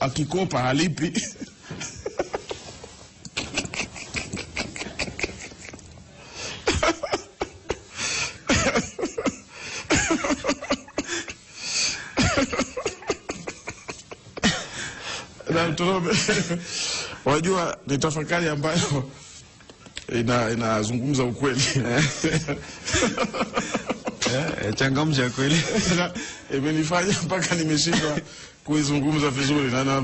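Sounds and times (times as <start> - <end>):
man laughing uncontrollably: 1.2 - 6.0, 6.6 - 7.9, 8.5 - 11.4, 12.2 - 14.7, 21.9 - 24.9.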